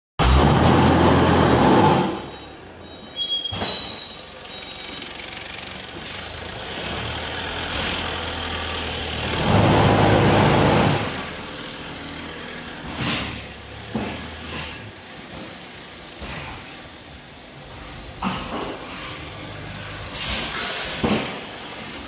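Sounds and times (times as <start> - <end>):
loud machine vibration burst: 4.5 - 22.0.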